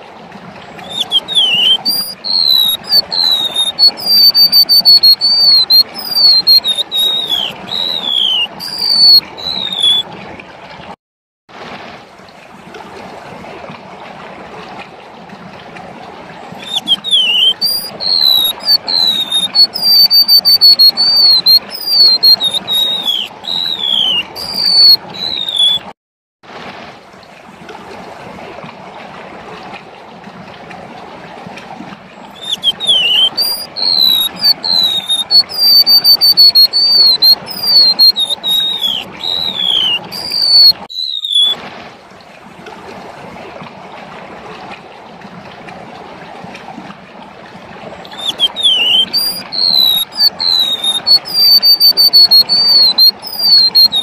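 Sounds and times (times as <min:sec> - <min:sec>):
bird singing high whistled notes: 0:00.8 - 0:10.0, 0:16.6 - 0:25.9, 0:32.4 - 0:41.6, 0:48.1 - 0:54.0.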